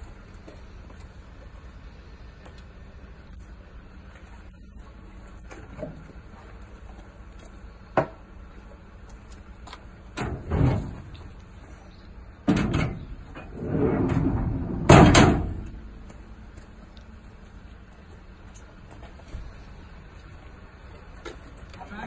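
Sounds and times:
metal drawers banging shut: 10.2s - 11.3s, 12.4s - 16.0s
metal drawers sliding on runners: 12.5s - 15.9s.

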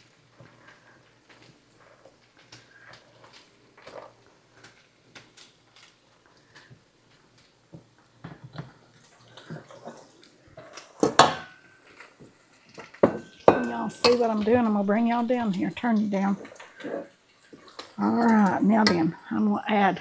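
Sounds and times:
metal tongs clanking on pot: 12.7s - 19.2s.

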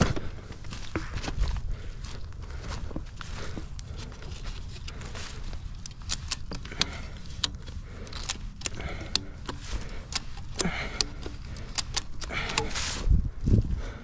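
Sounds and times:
ratchet strap clicking: 4.7s - 13.1s.

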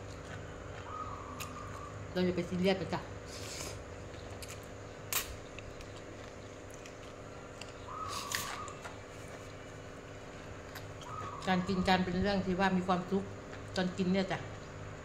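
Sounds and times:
person chewing: 0.0s - 1.9s, 3.3s - 11.5s
electric fan hum: 0.0s - 15.0s.

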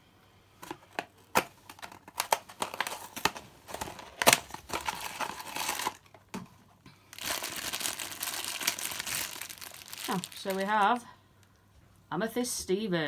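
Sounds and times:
cardboard flap tearing: 1.4s - 6.0s
plastic bag crinkling: 1.4s - 6.3s, 7.0s - 11.1s.

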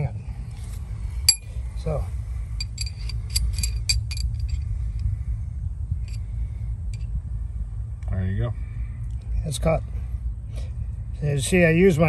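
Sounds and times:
low rumble: 0.0s - 12.0s
metal sockets clinking: 2.6s - 4.6s.

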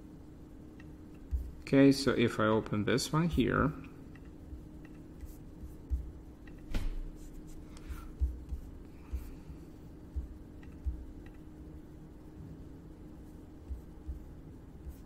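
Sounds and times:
faint hum: 0.0s - 15.0s
computer mouse clicks: 10.6s - 11.4s.

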